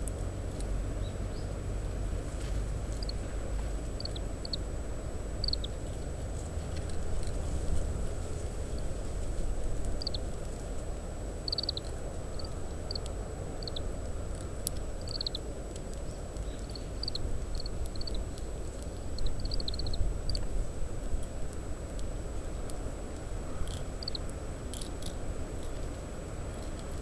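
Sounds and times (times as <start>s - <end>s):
finch chirping: 4.0s - 4.6s, 5.4s - 5.8s, 11.5s - 13.0s, 13.6s - 13.8s, 15.0s - 15.4s, 16.4s - 18.2s, 19.1s - 20.0s.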